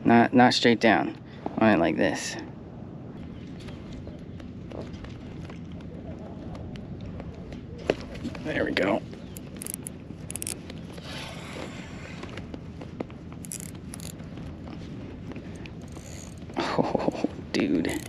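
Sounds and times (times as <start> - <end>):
steady low background: 0.0 - 18.0
spinning reel scrapes and clicks: 9.4 - 10.6, 13.4 - 14.2, 15.8 - 16.5.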